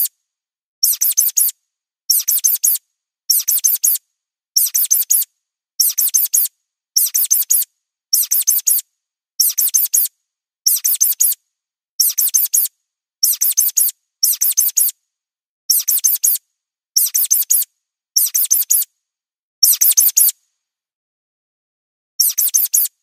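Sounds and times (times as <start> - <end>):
high-pitched mouse squeaks: 0.8 - 4.0, 4.6 - 8.8, 9.4 - 10.1, 10.7 - 11.4, 12.0 - 15.0, 15.7 - 16.4, 17.0 - 18.9, 19.6 - 20.4, 22.2 - 23.0.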